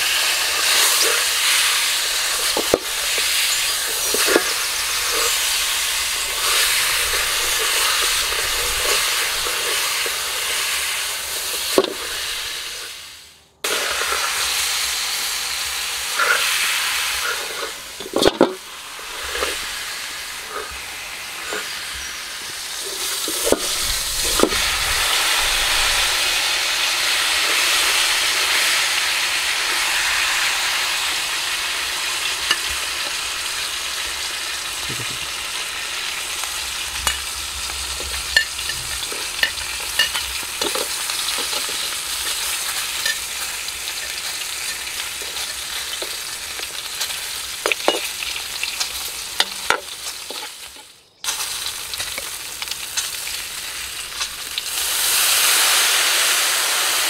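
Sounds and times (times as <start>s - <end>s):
metal spatula scraping pan: 0.0s - 12.9s, 16.1s - 19.7s, 20.4s - 22.1s, 22.7s - 24.7s, 36.0s - 50.7s
duck sizzling in a wok: 0.0s - 57.0s.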